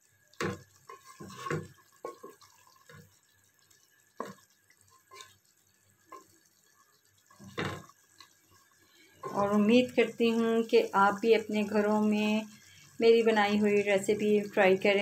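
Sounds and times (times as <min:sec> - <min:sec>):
spatula stirring thick curry: 0:00.1 - 0:10.2.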